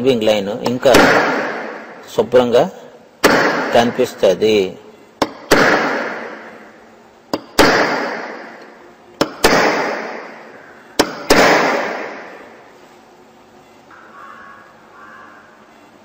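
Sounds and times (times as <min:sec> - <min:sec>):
hammer striking metal punch: 0:11.0 - 0:12.4.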